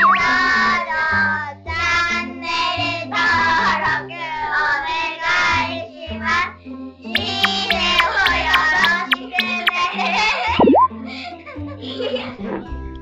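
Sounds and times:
bass line: 7.2 - 9.8, 10.6 - 10.9.

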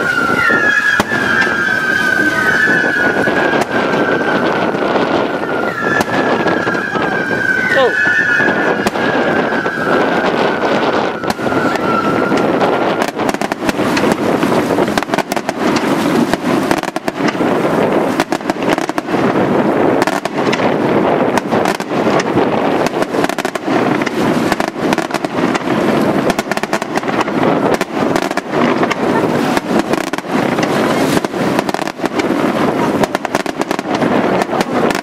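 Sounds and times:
falling firework whistle: 0.0 - 19.1, 26.2 - 35.0
fireworks bursts and crackling: 0.0 - 35.0.

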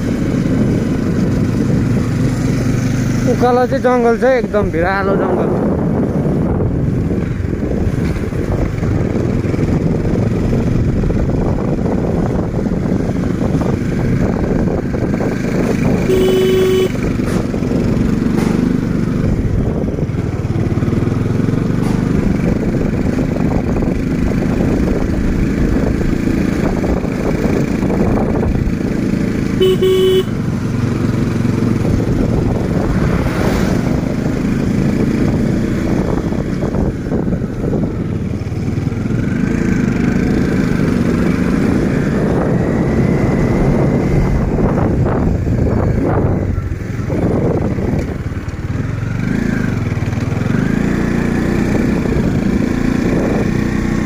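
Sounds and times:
motorcycle engine running: 0.0 - 54.0
horn beeping: 16.1 - 17.1, 29.6 - 30.4.

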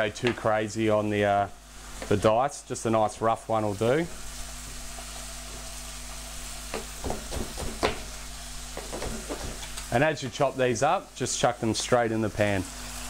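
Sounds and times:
meat sizzling in a frying pan: 0.0 - 13.0
knife strikes on chopping board: 6.7 - 8.1.

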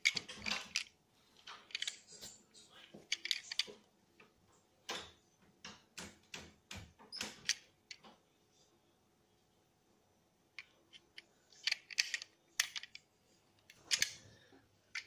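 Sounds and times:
toy car clicks and scrapes: 1.7 - 2.2, 3.1 - 3.7, 11.5 - 13.0, 13.6 - 14.2.

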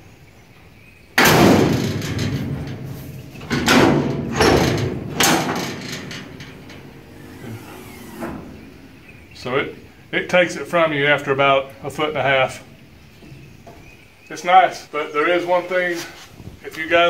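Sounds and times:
loud hood clunks: 1.2 - 9.4.

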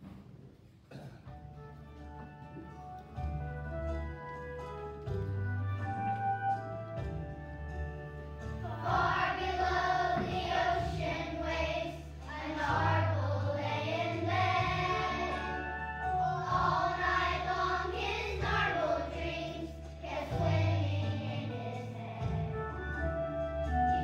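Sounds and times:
instrumental accompaniment: 1.2 - 24.0
children's choir singing: 8.6 - 24.0.

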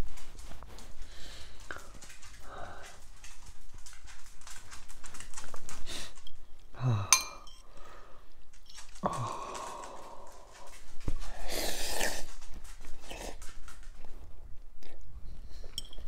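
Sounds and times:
chewing noodles: 0.4 - 6.7, 8.2 - 16.0
noisy breathing: 6.8 - 8.4, 9.0 - 12.3
fork clinking on glass bowl: 7.2 - 7.6, 15.7 - 16.0.

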